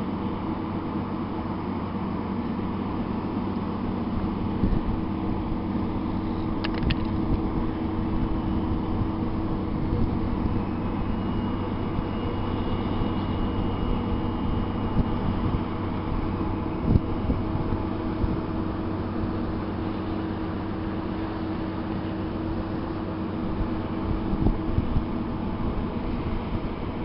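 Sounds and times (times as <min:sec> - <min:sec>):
barge diesel engine drone: 0:00.0 - 0:27.0
wind noise: 0:04.2 - 0:19.7, 0:22.4 - 0:27.0.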